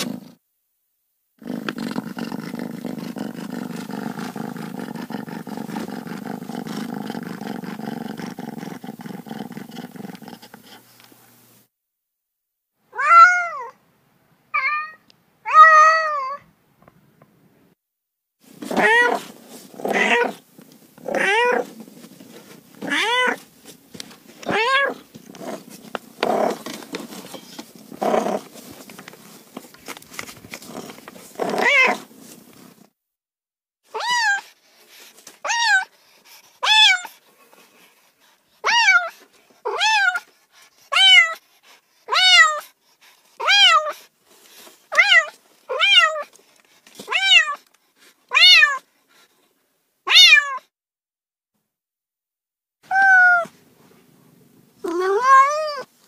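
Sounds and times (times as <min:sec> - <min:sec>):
cats meowing: 0:13.0 - 0:13.8, 0:14.6 - 0:16.4, 0:18.7 - 0:19.3, 0:21.1 - 0:21.7, 0:22.8 - 0:23.4, 0:24.4 - 0:25.0, 0:31.4 - 0:32.0, 0:40.9 - 0:41.4, 0:43.4 - 0:44.0, 0:44.9 - 0:46.3, 0:47.1 - 0:47.7, 0:48.3 - 0:48.8, 0:50.1 - 0:50.6, 0:52.9 - 0:53.6, 0:54.8 - 0:55.9.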